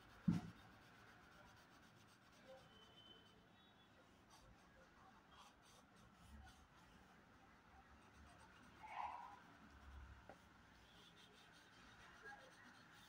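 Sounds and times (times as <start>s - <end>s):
thump: 0.2s - 0.6s
pen scratching on paper: 5.2s - 7.0s, 8.0s - 13.0s.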